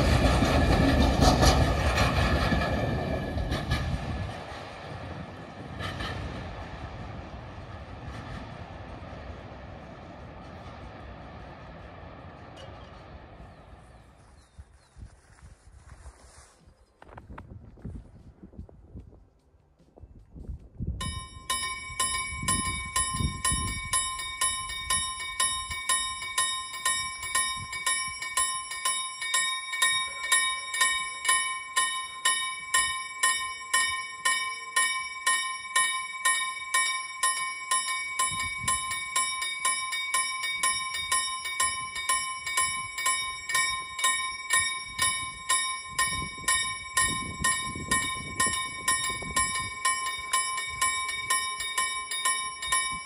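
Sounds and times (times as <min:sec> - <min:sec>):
level crossing warning bell ringing: 0:21.0 - 0:53.0.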